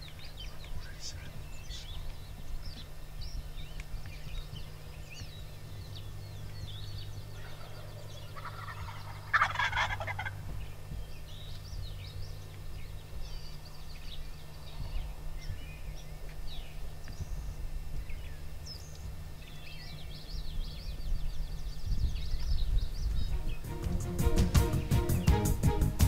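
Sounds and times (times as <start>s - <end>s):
songbird chirps: 0.0s - 26.0s
turkey gobbling: 7.4s - 10.8s.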